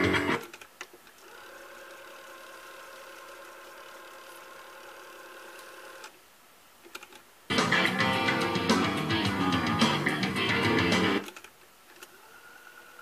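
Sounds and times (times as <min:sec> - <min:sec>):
guitar music playing: 0:00.0 - 0:00.4, 0:07.5 - 0:11.3
cassette deck fast-winding whine: 0:00.0 - 0:00.5.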